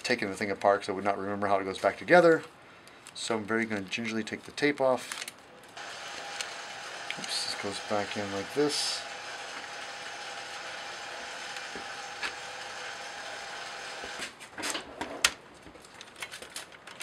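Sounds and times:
steady whirring: 5.8 - 14.2.

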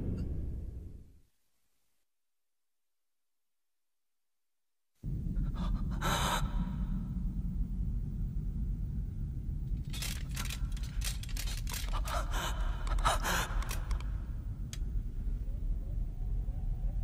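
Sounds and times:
steady low rumble: 5.0 - 17.0
dry scraping and creaking clicks: 9.7 - 14.9.

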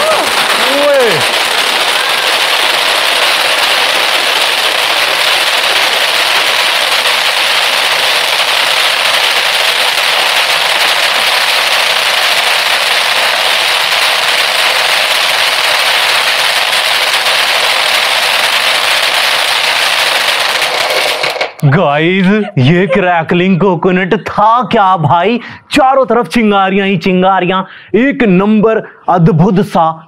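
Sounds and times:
firework fountain hiss: 0.0 - 23.4
firework fountain crackling: 0.0 - 29.9.

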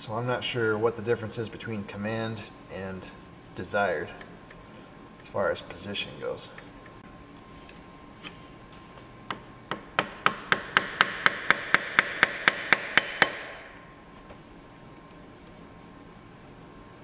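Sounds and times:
tool tapping on metal: 9.3 - 13.7.

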